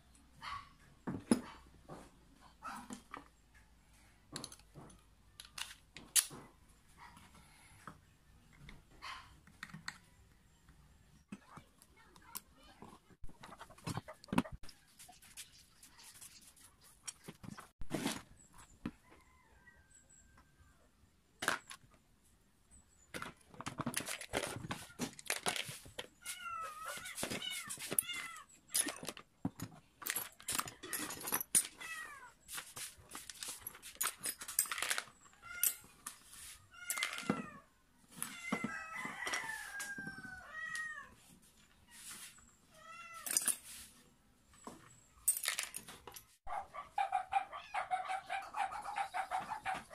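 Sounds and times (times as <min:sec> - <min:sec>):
metal parts clattering: 0:30.0 - 0:31.8, 0:33.3 - 0:35.9, 0:45.2 - 0:46.4.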